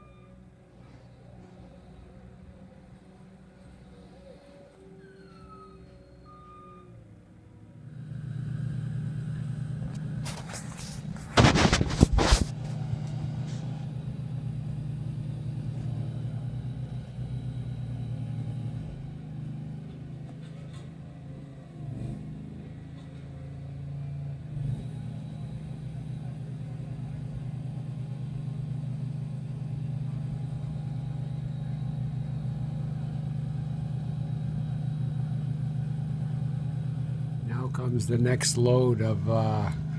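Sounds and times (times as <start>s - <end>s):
road roller engine running: 0.0s - 39.9s.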